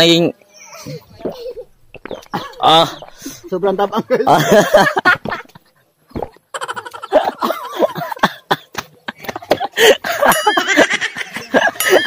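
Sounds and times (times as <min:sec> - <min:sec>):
voices laughing and exclaiming: 0:00.5 - 0:08.2.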